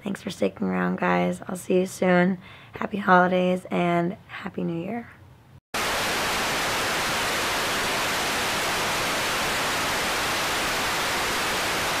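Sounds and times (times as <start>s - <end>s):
loud static hiss: 5.8s - 12.0s.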